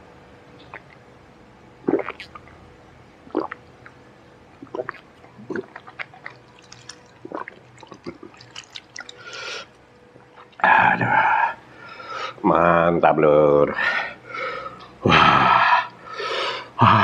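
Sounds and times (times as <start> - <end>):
lip smacks: 0.6 - 1.0, 1.9 - 2.6, 4.6 - 10.6
gulping: 1.8 - 2.6, 3.2 - 4.0, 4.6 - 9.7.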